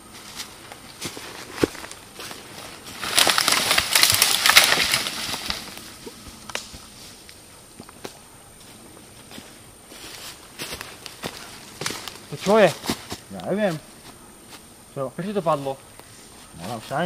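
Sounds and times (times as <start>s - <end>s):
leafy branches collapsing: 1.3s - 5.9s.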